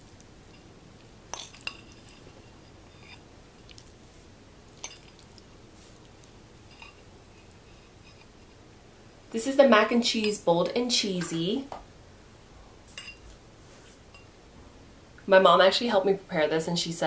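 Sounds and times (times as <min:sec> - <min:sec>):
fork clinking against glass bowl: 0:01.3 - 0:02.2, 0:04.8 - 0:05.3.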